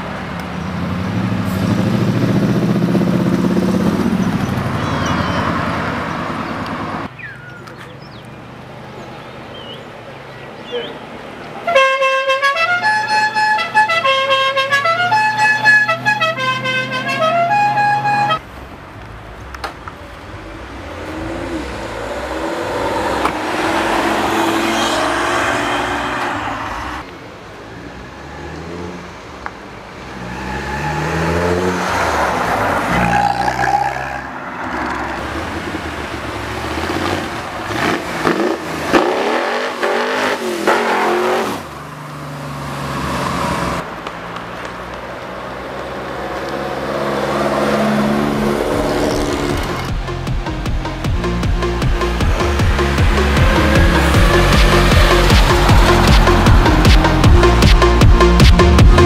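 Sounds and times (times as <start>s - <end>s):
cars accelerating past: 0.0s - 7.2s, 15.2s - 59.0s
musical car horn playing a tune: 11.7s - 18.4s.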